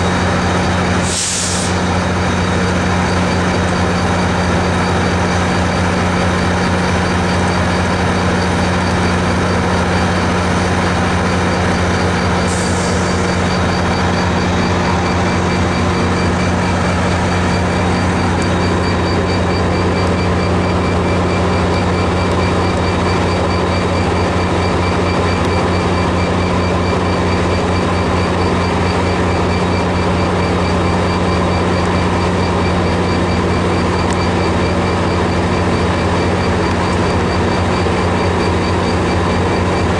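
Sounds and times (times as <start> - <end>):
diesel locomotive engine humming: 0.0 - 39.9
air hiss: 1.0 - 1.8.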